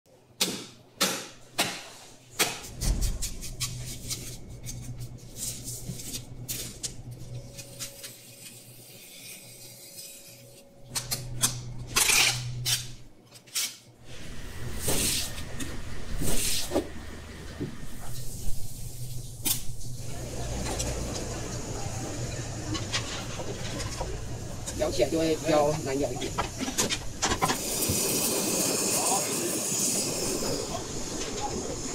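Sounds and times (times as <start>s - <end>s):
steady low hum: 2.2s - 31.9s
knives scraping and cutting fish: 7.4s - 13.8s.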